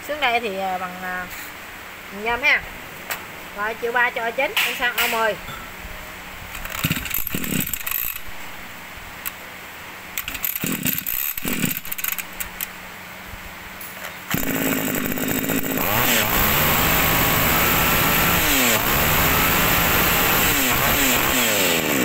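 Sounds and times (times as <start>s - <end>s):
starter cord pulls: 6.6s - 8.2s, 10.2s - 12.7s
brush cutter engine revving: 6.6s - 8.3s, 10.2s - 12.6s, 14.2s - 22.0s.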